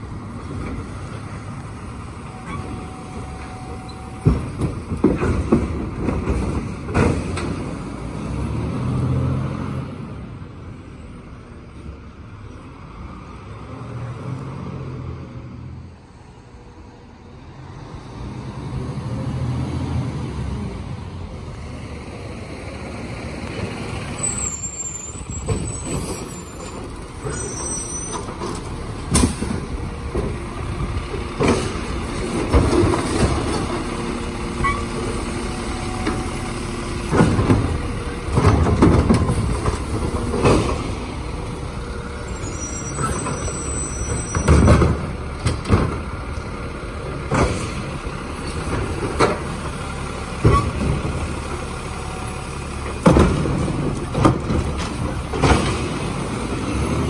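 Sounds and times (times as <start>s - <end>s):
bangs and clatters of carts: 4.1s - 8.0s, 24.7s - 35.2s, 35.9s - 41.4s, 42.7s - 46.3s, 47.0s - 51.8s, 52.7s - 57.0s
air brakes hissing: 42.1s - 44.5s
diesel engine running: 44.5s - 57.0s.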